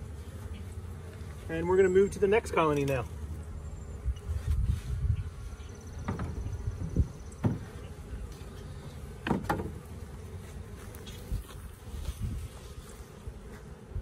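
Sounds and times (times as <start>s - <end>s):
honeybees buzzing: 0.0s - 14.0s
sharp knocks on hive: 6.0s - 7.8s, 9.2s - 10.0s.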